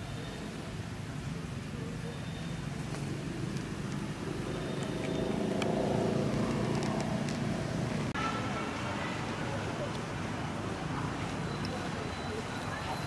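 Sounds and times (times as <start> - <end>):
vehicle engine running: 2.7 - 8.2.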